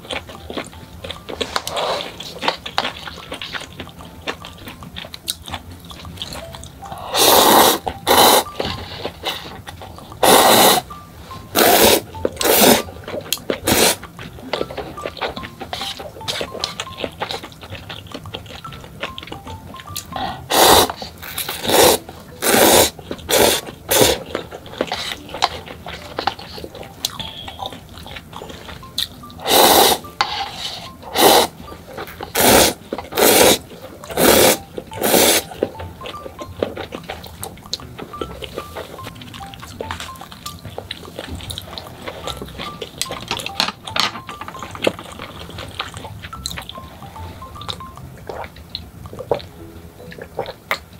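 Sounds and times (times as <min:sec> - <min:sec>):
soft background music: 0:00.0 - 0:50.9
wet noodle slurps: 0:07.1 - 0:09.5, 0:10.2 - 0:10.8, 0:11.6 - 0:12.9, 0:13.6 - 0:14.0, 0:20.5 - 0:24.2, 0:29.4 - 0:31.5, 0:32.3 - 0:36.1.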